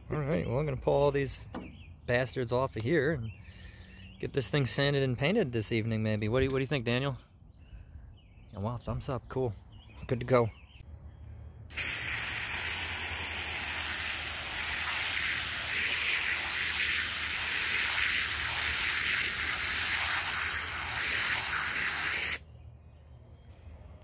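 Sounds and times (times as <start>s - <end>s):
hose nozzle spraying water: 11.7s - 22.4s.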